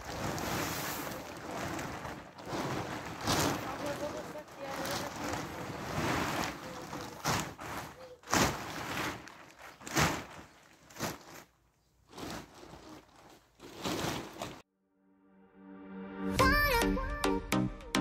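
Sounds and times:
grain being shoveled and thrown: 0.0s - 11.5s, 12.1s - 14.6s.

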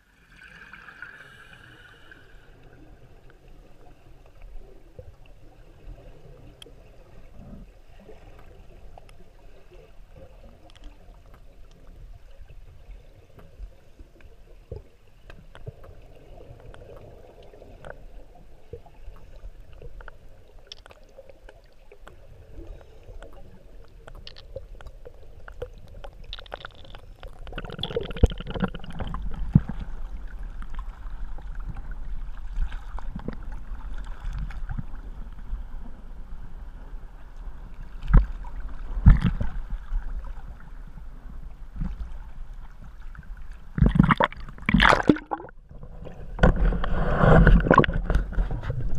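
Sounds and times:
faint clicks: 10.6s - 11.9s
water splashing against camera: 22.8s - 34.9s, 43.6s - 48.9s.

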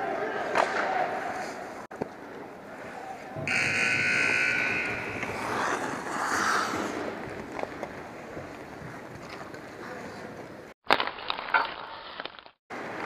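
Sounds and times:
arena horn long blast: 3.4s - 5.7s.

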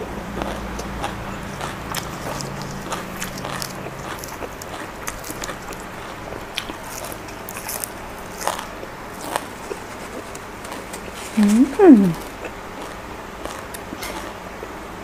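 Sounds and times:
close chewing with mouth clicks: 0.0s - 14.9s
small crunches: 0.4s - 11.6s.

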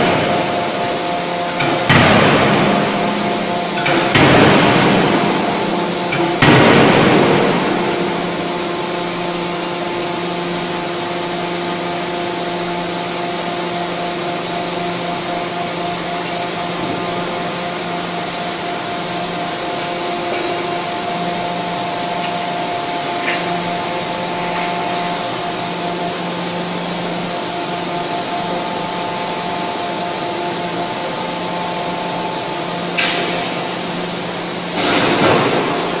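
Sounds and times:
hydraulic machine droning: 0.0s - 36.0s
loud noisy burst: 30.5s - 36.0s.

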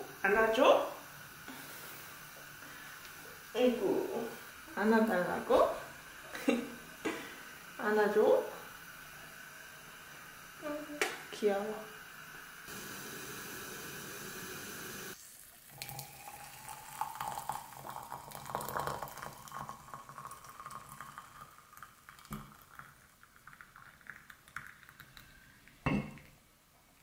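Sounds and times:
steady hiss: 0.0s - 23.1s
water pouring into a teapot: 12.0s - 26.4s.

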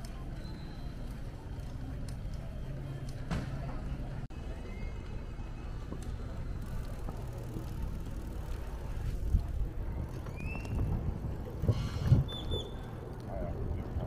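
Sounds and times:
bike rolling over stone paving: 6.0s - 14.0s.

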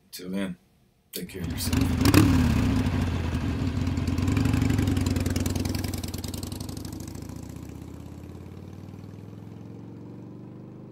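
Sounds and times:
motorcycle engine idling: 1.4s - 9.3s.

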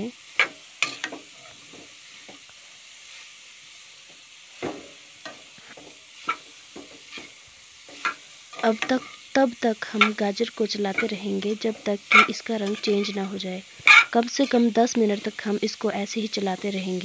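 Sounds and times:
carrots sizzling in oil: 0.0s - 17.0s
metal spoon scraping pan: 0.4s - 1.6s, 5.7s - 9.2s, 10.9s - 14.7s.

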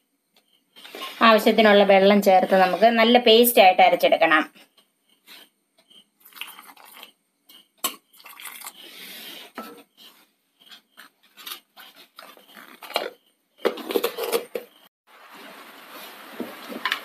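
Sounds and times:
water pouring into a bowl: 6.2s - 7.1s, 8.1s - 8.9s
kitchenware clinking and knocking: 12.8s - 14.9s.

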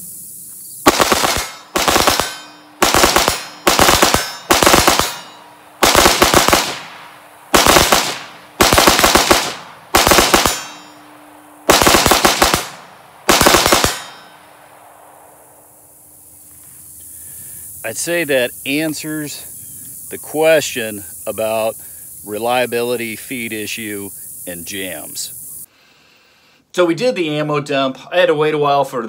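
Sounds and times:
rifle shots fired rapidly: 0.8s - 10.9s, 11.7s - 14.2s.

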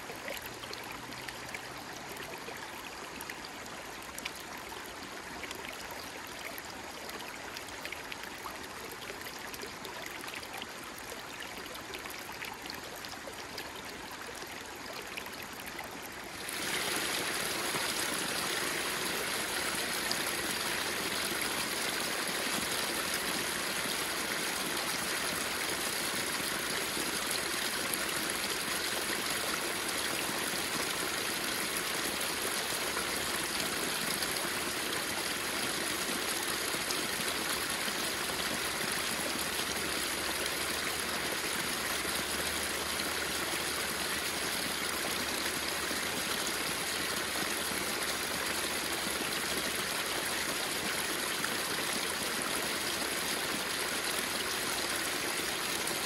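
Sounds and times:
small waterfall splashing: 12.8s - 56.0s.

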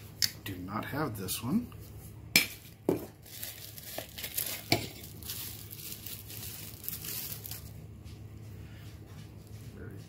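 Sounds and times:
bubble wrap crinkling: 2.6s - 8.0s.

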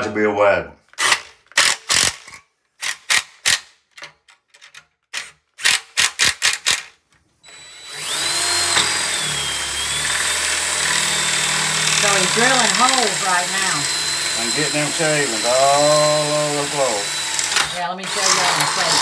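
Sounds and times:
cordless drill boring metal: 7.4s - 19.0s.

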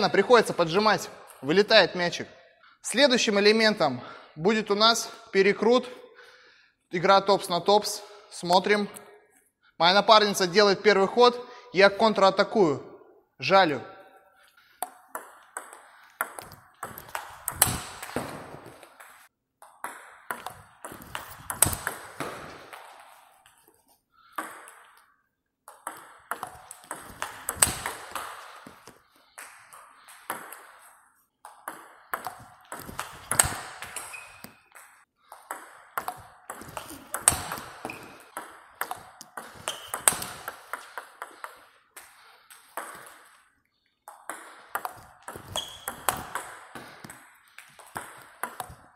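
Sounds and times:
table tennis ball hitting bats: 14.6s - 48.9s.

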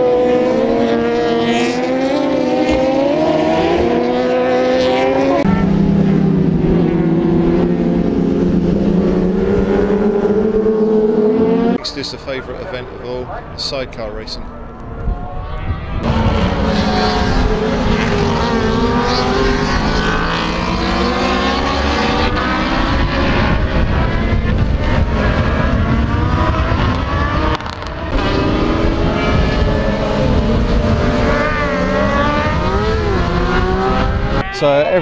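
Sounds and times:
racing engines revving: 0.0s - 35.0s.

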